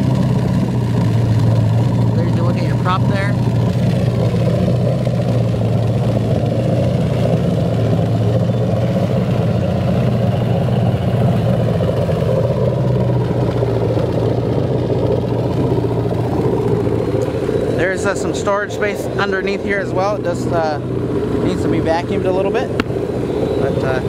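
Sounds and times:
boat engine idling: 0:00.0 - 0:24.0
cooling water discharging: 0:00.0 - 0:24.0.

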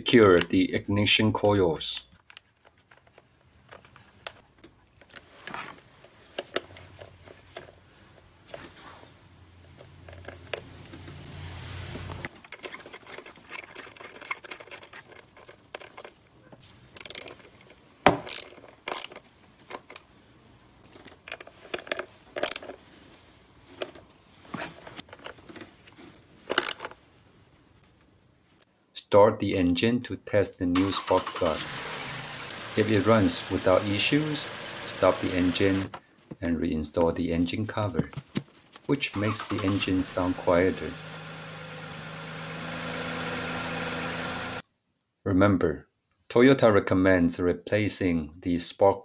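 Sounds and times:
ratchet clicking and knocking: 0:18.2 - 0:19.2.

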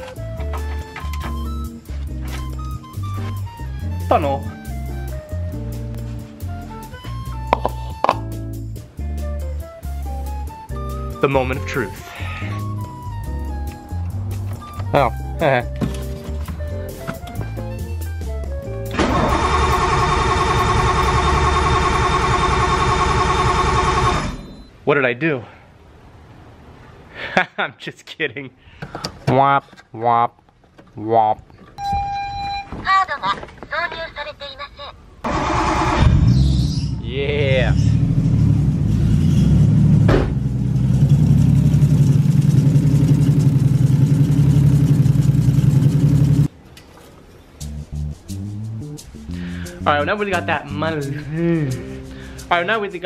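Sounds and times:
background music: 0:00.0 - 0:21.1, 0:47.6 - 0:53.0
car engine starting and running: 0:18.9 - 0:24.6, 0:35.2 - 0:46.5.

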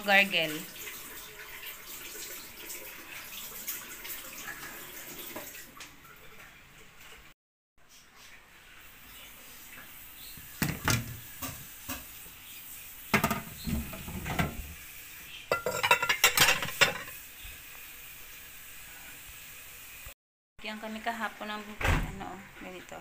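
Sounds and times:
dishes clinking in drying rack: 0:10.6 - 0:12.0, 0:13.1 - 0:14.8, 0:15.5 - 0:17.1.

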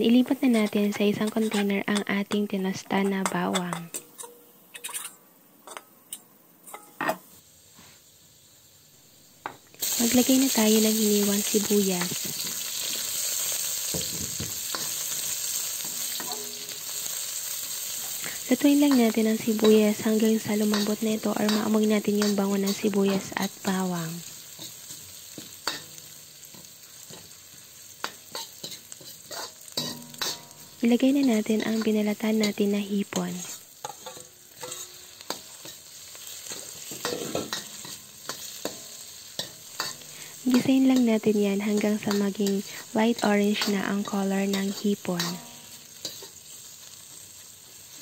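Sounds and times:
onions sizzling in hot oil: 0:00.0 - 0:04.3, 0:06.7 - 0:48.0
spatula scraping a wok: 0:09.8 - 0:48.0.

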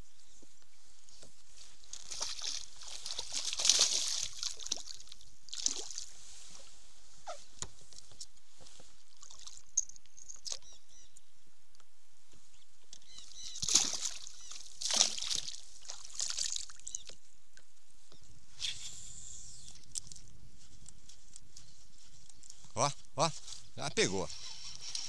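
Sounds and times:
fish splashing and thrashing: 0:01.8 - 0:06.2, 0:09.1 - 0:10.6, 0:13.5 - 0:17.1.

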